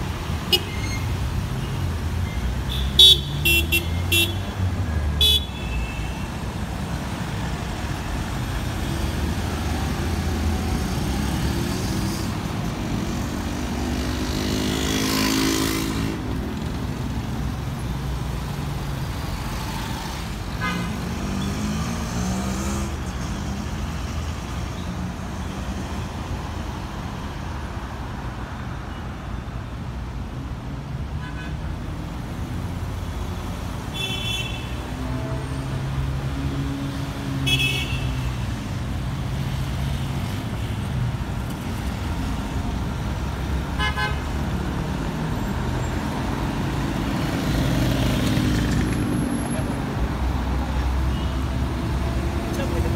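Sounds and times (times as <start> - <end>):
car engines rumbling: 6.2 - 34.0, 34.7 - 52.9.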